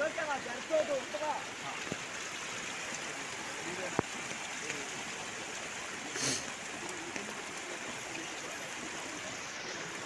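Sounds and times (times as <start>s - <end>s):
floodwater rushing: 0.0s - 10.0s.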